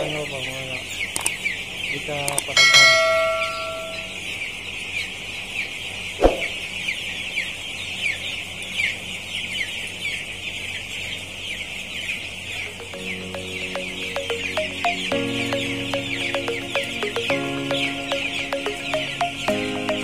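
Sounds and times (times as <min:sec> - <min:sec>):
chicks peeping: 0:00.0 - 0:02.6, 0:03.3 - 0:20.0
music: 0:12.8 - 0:20.0.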